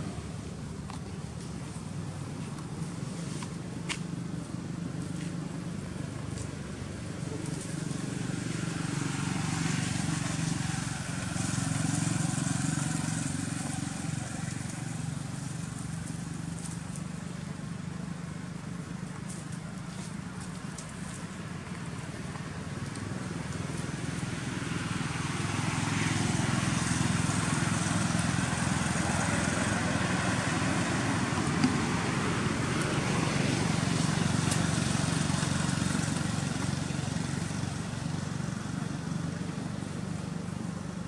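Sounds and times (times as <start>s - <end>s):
vehicle engine humming: 0.0s - 41.0s.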